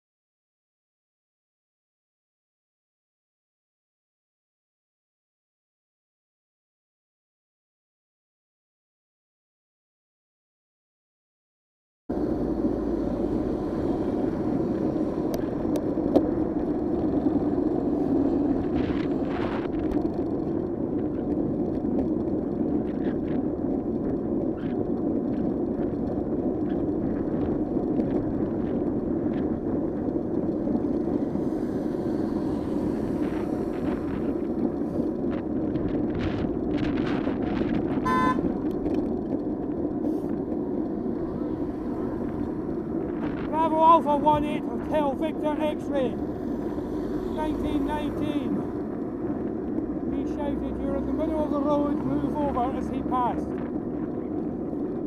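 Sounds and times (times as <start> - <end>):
wind noise: 12.1 - 55.0
car horn toot: 38.0 - 38.5.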